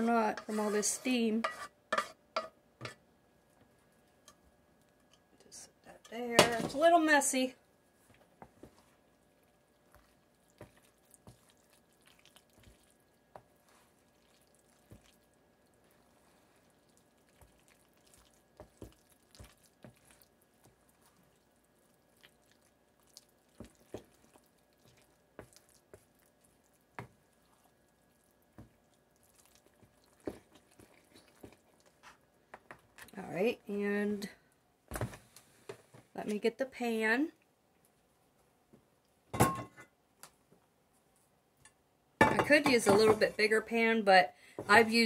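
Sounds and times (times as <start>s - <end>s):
spatula folding macaroni squelches: 0.0s - 33.2s.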